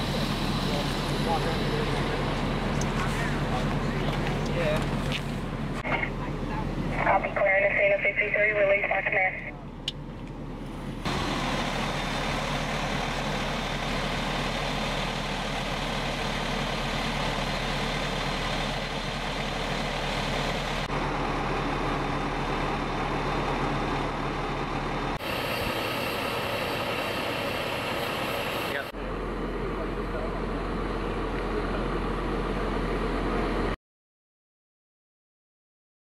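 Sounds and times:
truck engines idling: 0:00.0 - 0:33.8.

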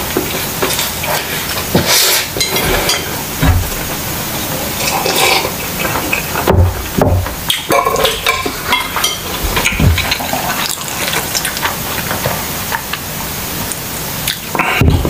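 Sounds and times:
wet chewing and mouth smacks: 0:09.6 - 0:13.0.

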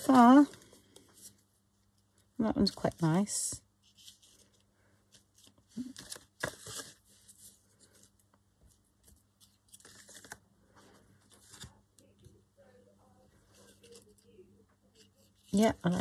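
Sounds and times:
paper rustling and crinkling: 0:03.8 - 0:11.8.

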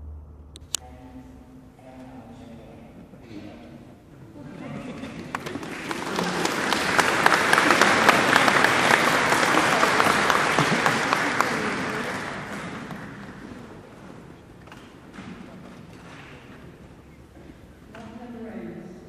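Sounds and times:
crowd applauding: 0:04.9 - 0:16.8.

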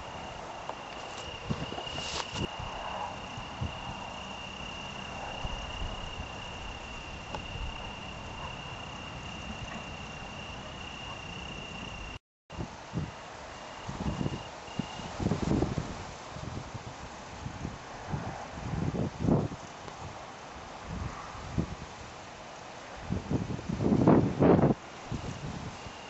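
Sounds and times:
cricket trilling: 0:00.0 - 0:15.2, 0:25.1 - 0:26.0.

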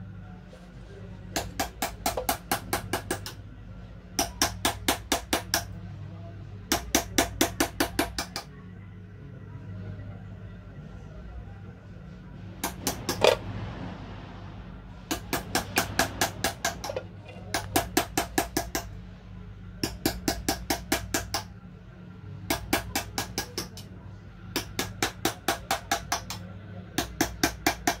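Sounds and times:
steady low hum: 0:00.0 - 0:28.0
small hammer tapping on metal: 0:01.4 - 0:03.4, 0:04.2 - 0:05.7, 0:06.7 - 0:08.5, 0:12.6 - 0:13.4, 0:15.1 - 0:18.9, 0:19.8 - 0:21.5, 0:22.5 - 0:23.9, 0:24.5 - 0:26.4, 0:27.0 - 0:28.0.

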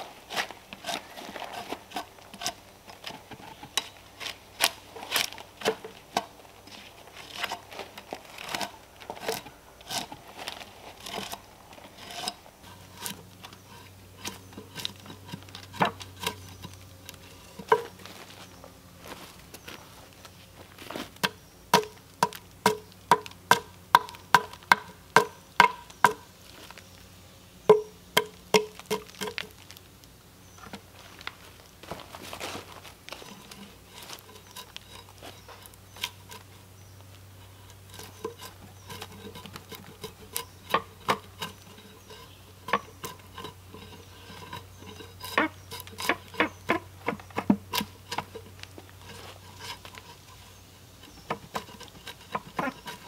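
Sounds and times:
drawknife scraping bark: 0:00.2 - 0:18.5, 0:33.1 - 0:36.6, 0:37.3 - 0:53.0
hatchet knocking on log: 0:21.8 - 0:26.2.

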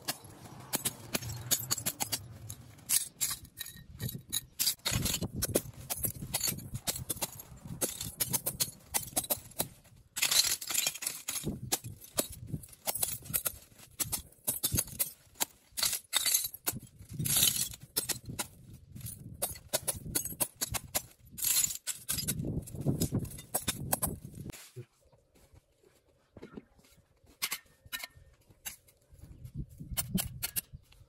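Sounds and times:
building materials clinking and scraping: 0:00.0 - 0:24.6.

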